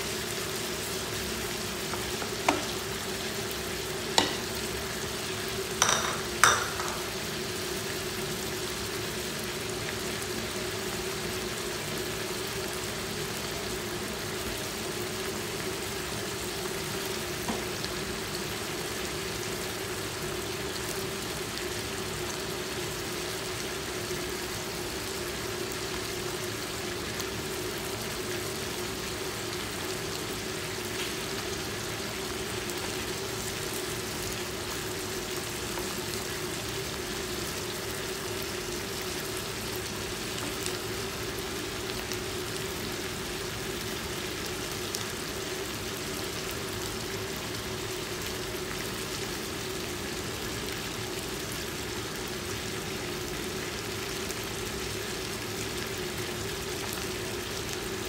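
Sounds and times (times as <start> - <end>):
meat and onions sizzling in a pan: 0.0 - 58.0.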